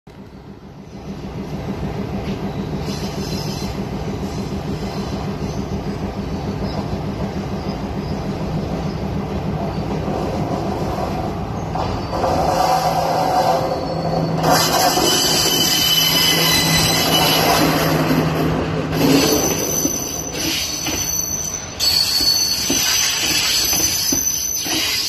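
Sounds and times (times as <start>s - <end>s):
oncoming train passing: 0.1s - 25.0s
train wheels rumbling on track: 0.1s - 25.0s.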